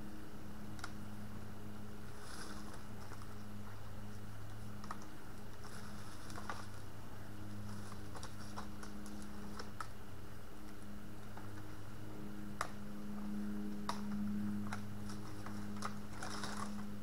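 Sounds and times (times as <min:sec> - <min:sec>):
steady low hum: 0:00.0 - 0:17.0
dry twigs crackling: 0:02.0 - 0:10.0, 0:12.6 - 0:17.0.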